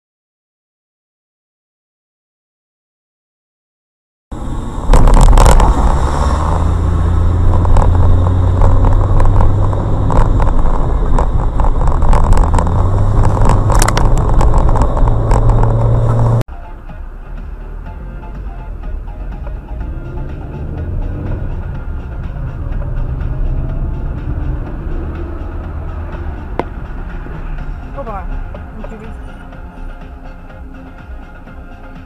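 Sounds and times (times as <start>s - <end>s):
road noise: 4.3s - 32.0s
vehicle engine drone: 4.3s - 32.0s
knocks and rattles: 7.3s - 16.4s.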